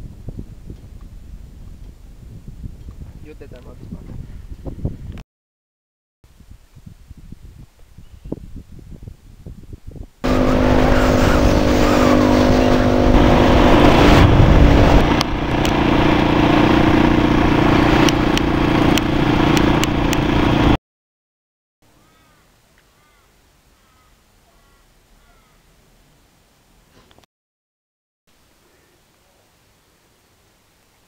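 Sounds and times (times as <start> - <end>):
wind rush over microphone: 0.0 - 5.2, 6.3 - 20.7
dirt bike engine running: 10.2 - 20.8.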